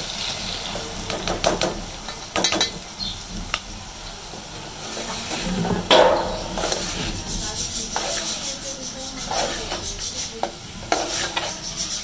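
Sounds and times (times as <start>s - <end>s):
low sizzle: 0.0s - 12.0s
ladle scraping metal pot: 4.9s - 12.0s.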